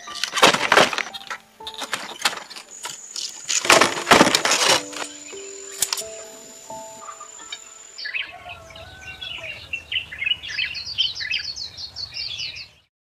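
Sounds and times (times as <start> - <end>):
held music tone: 0.0 - 8.2
birds chirping: 0.0 - 12.9.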